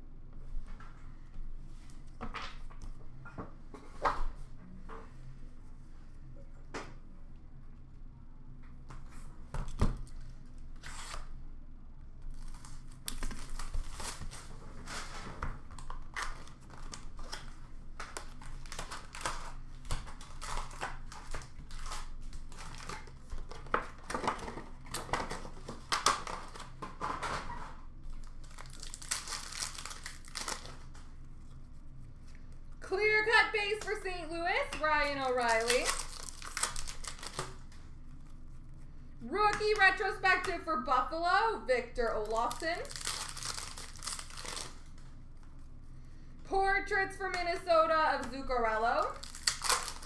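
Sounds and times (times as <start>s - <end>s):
card packs torn open: 10.8s - 11.3s, 18.1s - 26.8s, 28.2s - 31.0s, 35.2s - 37.7s, 42.4s - 44.9s, 49.1s - 50.0s
wrappers crinkling: 15.8s - 24.0s, 28.1s - 31.6s, 34.8s - 38.4s, 42.2s - 45.0s, 49.0s - 50.0s.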